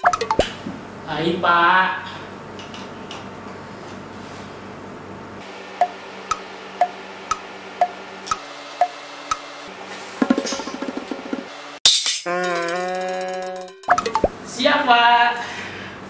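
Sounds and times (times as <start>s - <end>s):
clock tick-tock: 5.8s - 9.4s.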